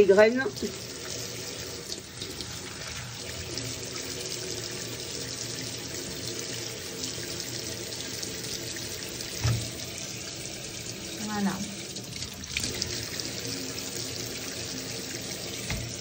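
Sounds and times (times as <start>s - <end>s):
tap water running into sink: 0.0s - 16.0s
water splashing over colander: 0.0s - 16.0s
short thump: 9.4s - 9.7s.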